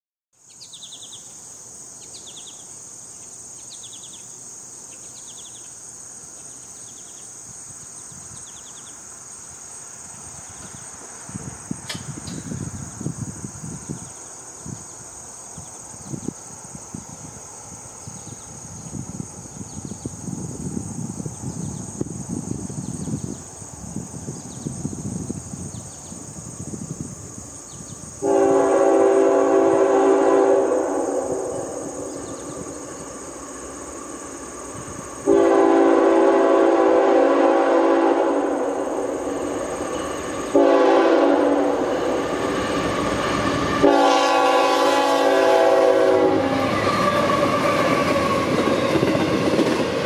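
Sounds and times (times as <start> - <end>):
high-pitched insect chorus: 0.4 - 50.0
sharp click: 11.8 - 12.5.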